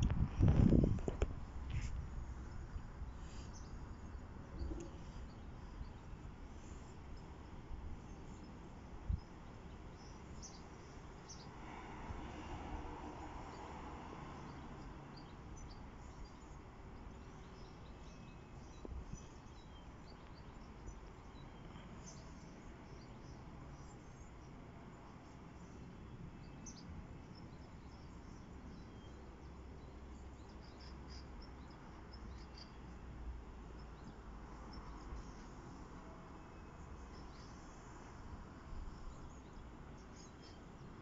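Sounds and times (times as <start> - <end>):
wind rumble on microphone: 0.0 - 14.9, 15.6 - 22.0.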